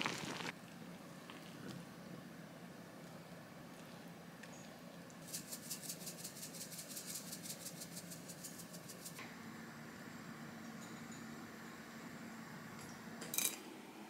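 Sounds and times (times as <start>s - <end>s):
faint steady hum: 0.0s - 14.0s
spice shaker rattling: 5.2s - 9.2s.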